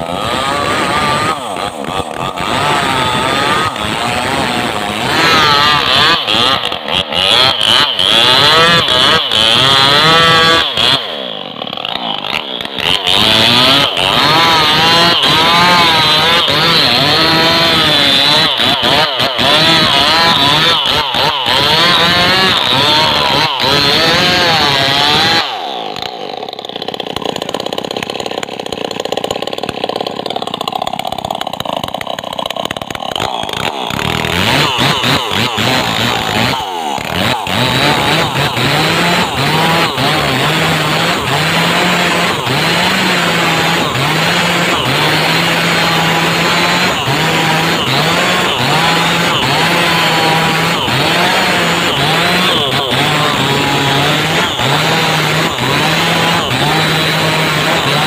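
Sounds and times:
chainsaw cutting wood: 0:00.0 - 0:58.0.

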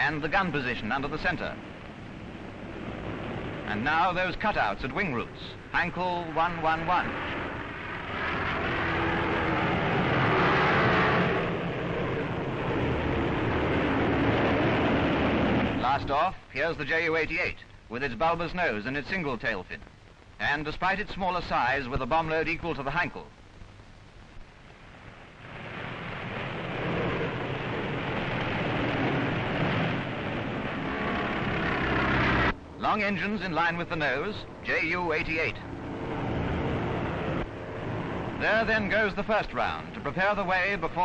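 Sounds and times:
aircraft engines droning: 0:00.0 - 0:16.5, 0:25.0 - 0:41.0.

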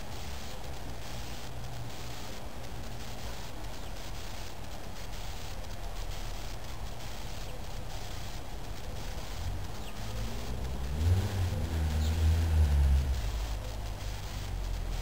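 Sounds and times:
vehicle engine accelerating: 0:09.3 - 0:15.0.

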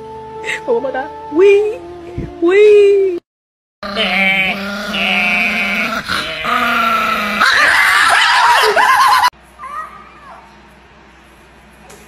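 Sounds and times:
man howling: 0:03.8 - 0:09.2.

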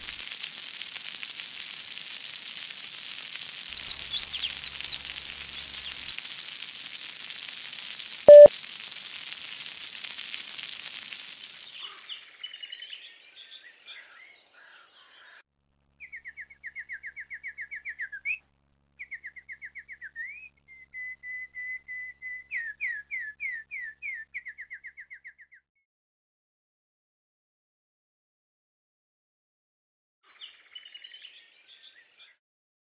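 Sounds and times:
bird singing trills: 0:08.3 - 0:08.5
short loud beep: 0:08.3 - 0:08.5.

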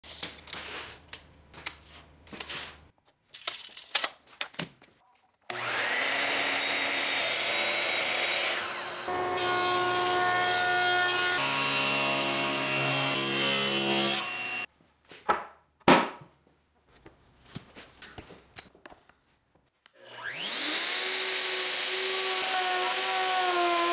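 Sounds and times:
miter saw cutting: 0:05.5 - 0:14.7, 0:20.0 - 0:23.9
table saw cutting hardwood: 0:05.5 - 0:14.7, 0:20.0 - 0:23.9.

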